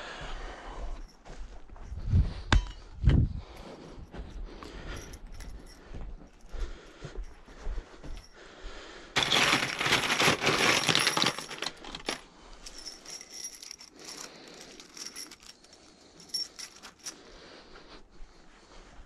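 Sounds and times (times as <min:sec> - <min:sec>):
steel nails rattling and clinking: 0:09.2 - 0:17.3.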